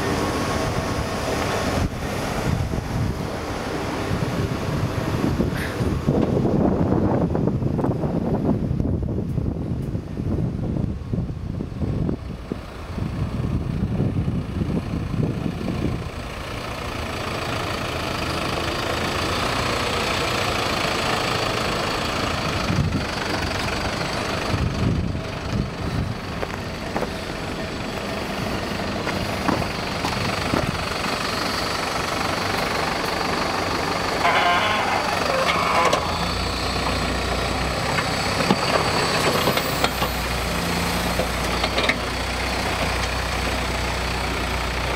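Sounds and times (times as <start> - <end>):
plow blade pushing snow: 0.0 - 6.8, 12.3 - 44.9
diesel engine running: 0.0 - 44.9
wind buffeting microphone: 0.6 - 16.4, 22.3 - 31.2.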